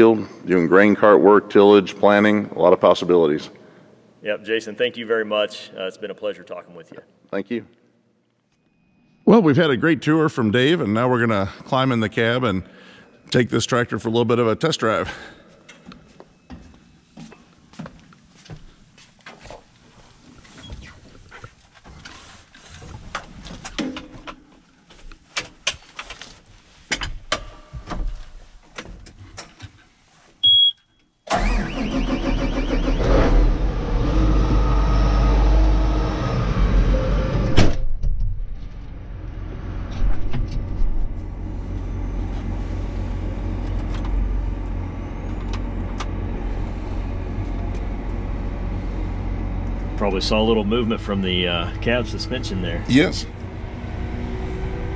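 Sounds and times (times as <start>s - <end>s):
short beep: 30.4s - 31.0s
diesel engine starting and idling: 31.3s - 37.8s, 38.6s - 54.9s.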